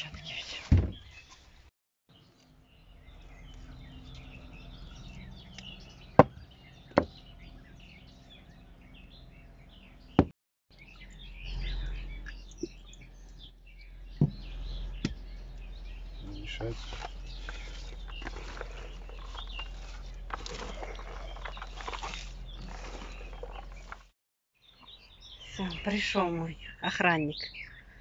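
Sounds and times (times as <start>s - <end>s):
songbirds chirping and singing: 0.0s - 28.0s
sharp knocks: 6.2s - 7.2s.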